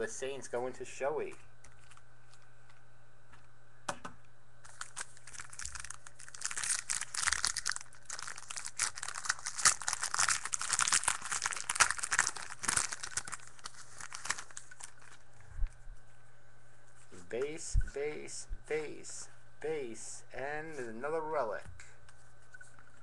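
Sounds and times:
wrapper tearing and crinkling: 4.6s - 15.3s.

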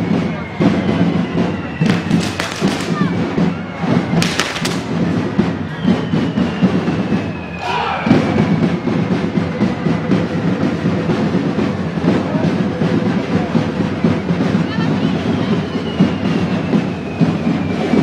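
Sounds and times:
firework fountains hissing: 0.0s - 7.6s, 10.4s - 18.0s
fireworks crackling: 0.0s - 7.6s, 8.2s - 18.0s
long falling whistle: 0.0s - 10.4s, 14.9s - 18.0s
fast drumming: 0.2s - 7.3s, 8.1s - 18.0s.

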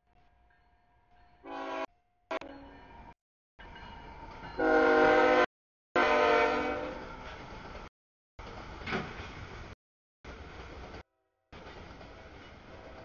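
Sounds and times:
low rumble of train: 0.0s - 13.0s
locomotive air horn blasts: 1.4s - 1.9s, 4.6s - 7.0s.

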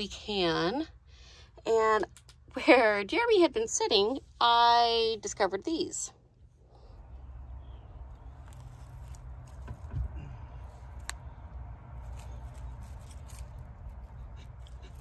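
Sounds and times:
rustles scrapes and clicks in leaves: 8.2s - 9.9s, 11.9s - 15.0s.

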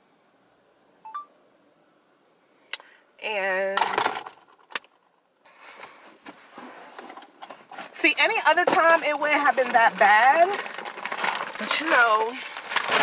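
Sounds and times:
phone beep: 1.0s - 1.3s
rustling: 4.0s - 13.0s.

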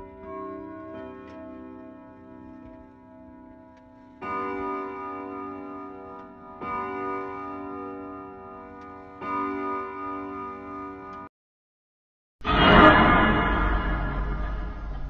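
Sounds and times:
clock striking bell tones: 0.0s - 11.3s.

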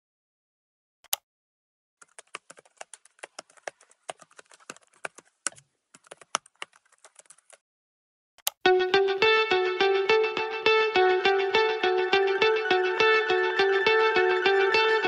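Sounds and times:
keyboard typing: 2.0s - 7.6s.

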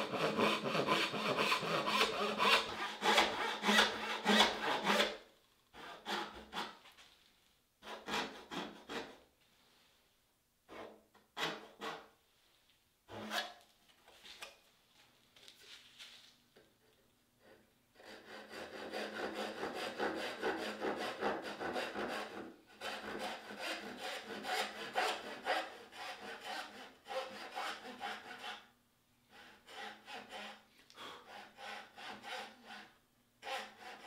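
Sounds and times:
backsaw rasping through wood: 0.0s - 5.1s, 5.8s - 6.8s, 18.0s - 28.7s, 29.3s - 34.0s.

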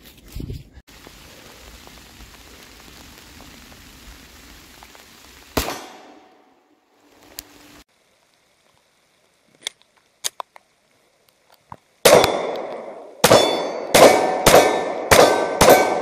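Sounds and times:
pistol shots with ringing decay: 5.6s - 6.5s, 12.0s - 16.0s
faint clicks: 7.2s - 7.5s.

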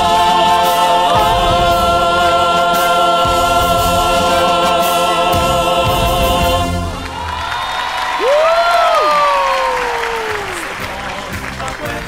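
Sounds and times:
band playing: 0.0s - 7.5s
chorus singing marching song: 0.0s - 7.5s.

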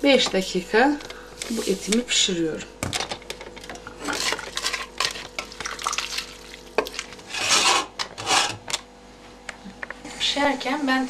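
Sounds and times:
metal scrapes: 7.3s - 8.6s.

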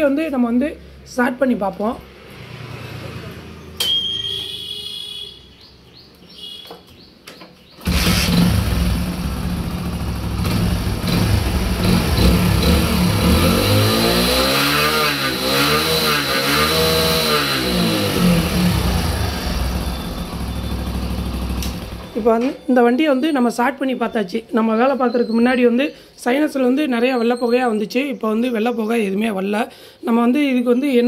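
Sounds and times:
motorcycle engine starting and revving: 7.8s - 22.4s.

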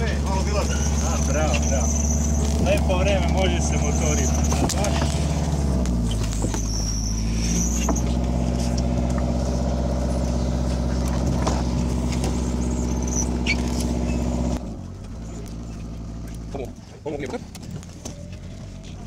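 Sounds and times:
diesel engine droning: 0.0s - 19.0s
faint high squeaks: 0.6s - 5.4s, 6.0s - 8.8s, 12.2s - 14.6s.

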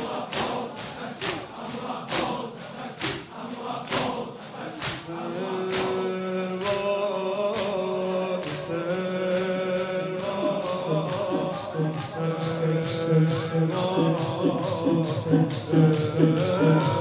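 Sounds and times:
crowd chanting a dirge: 0.0s - 17.0s
sharp rhythmic beat: 8.5s - 17.0s.

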